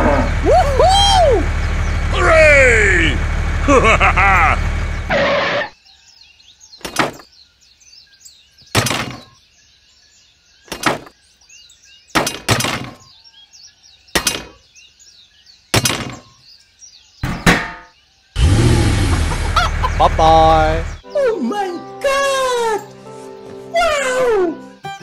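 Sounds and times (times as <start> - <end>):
birds chirping: 0.0 - 25.0
sharp ringing knocks: 8.8 - 9.4, 12.2 - 13.1, 14.2 - 14.6, 15.8 - 16.4, 17.2 - 18.0.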